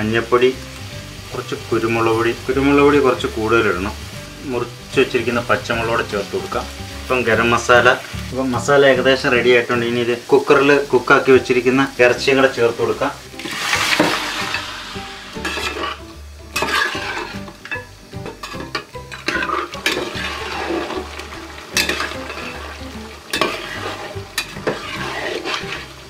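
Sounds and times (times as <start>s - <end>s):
wet sizzle: 0.0s - 26.0s
metal spatula scraping pot: 13.4s - 26.0s.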